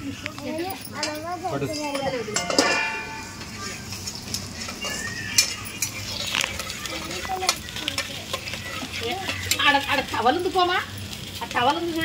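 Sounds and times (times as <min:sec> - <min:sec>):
curry sizzling in a pan: 0:00.0 - 0:12.0
spoon scraping a pan: 0:04.4 - 0:10.2.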